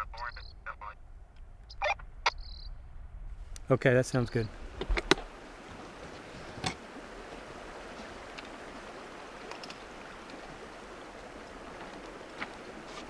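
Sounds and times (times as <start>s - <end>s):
flowing river water: 3.5s - 13.0s
faint clicks: 9.4s - 10.4s.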